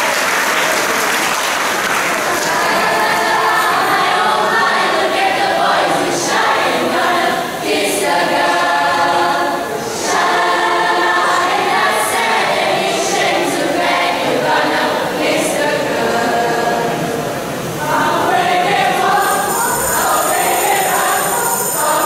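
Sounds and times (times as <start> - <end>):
mixed choir singing: 0.2 - 22.0.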